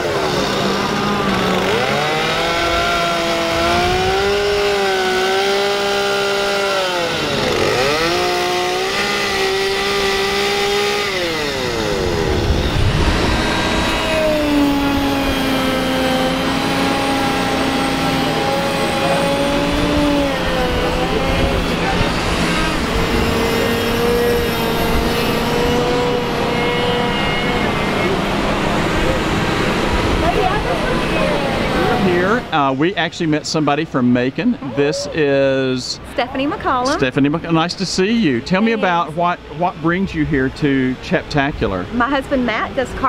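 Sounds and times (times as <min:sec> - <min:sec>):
chainsaws carving wood: 0:00.0 - 0:32.8
lower-pitched saw running: 0:00.0 - 0:32.9.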